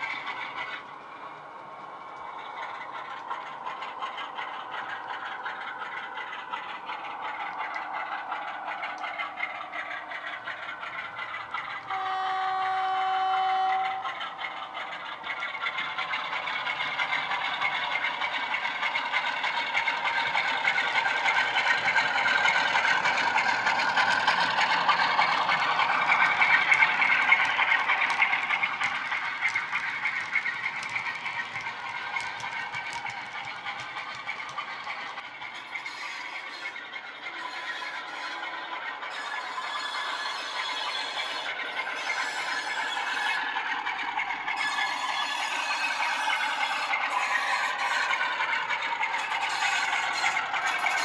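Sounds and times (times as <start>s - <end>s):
model diesel engine sound running: 0.0s - 35.8s
model wheels rattling on track: 0.0s - 51.0s
locomotive horn: 11.9s - 14.1s.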